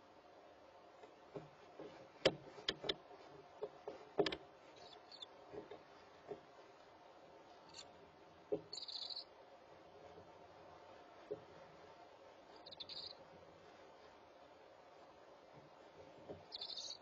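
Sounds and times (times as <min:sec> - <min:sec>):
high-pitched owlet chirp: 0:04.8 - 0:05.3, 0:08.7 - 0:09.3, 0:12.6 - 0:13.2, 0:16.5 - 0:17.0.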